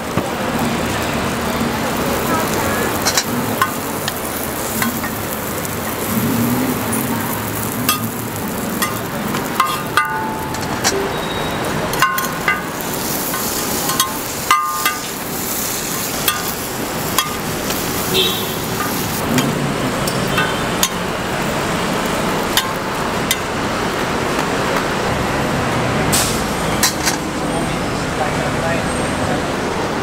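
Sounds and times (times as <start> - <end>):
roti sizzling on a griddle: 0.0 - 28.3
metal spatula clinking on griddle: 3.0 - 5.4, 7.6 - 11.1, 11.9 - 15.3, 16.2 - 17.8, 18.7 - 21.1, 22.5 - 23.5.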